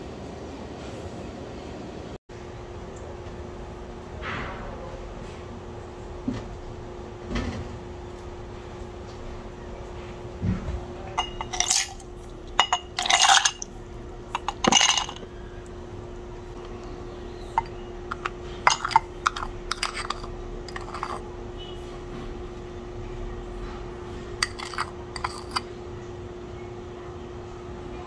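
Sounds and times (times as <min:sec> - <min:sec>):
faint steady hum: 0:00.0 - 0:28.0
ice cubes clattering into glass: 0:11.2 - 0:12.0, 0:12.6 - 0:13.7, 0:14.3 - 0:15.2, 0:17.6 - 0:21.2, 0:24.4 - 0:25.6
spoon clinking against glass: 0:11.2 - 0:13.7, 0:14.3 - 0:15.3, 0:17.6 - 0:21.2, 0:24.4 - 0:25.7.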